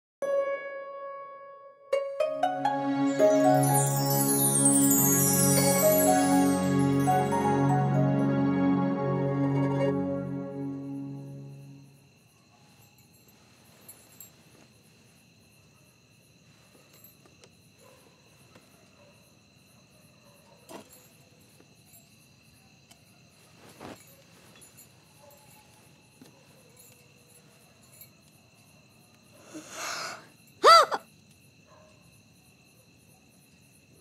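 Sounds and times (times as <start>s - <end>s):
soft music: 0.2s - 12.1s
crickets chirping: 1.9s - 34.0s.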